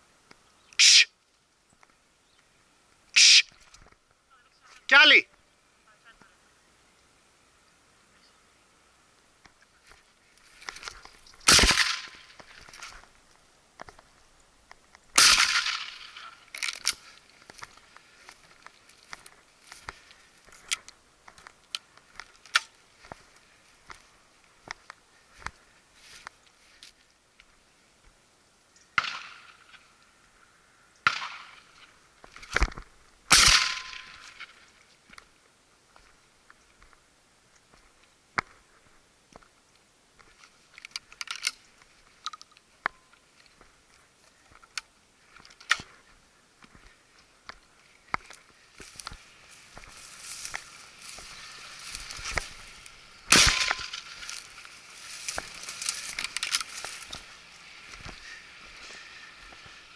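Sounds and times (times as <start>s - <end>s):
footsteps on rough ground: 9.3s - 28.2s, 31.4s - 59.9s
shotgun shots: 11.4s - 12.4s, 15.2s - 16.3s, 33.3s - 34.2s, 53.3s - 54.0s.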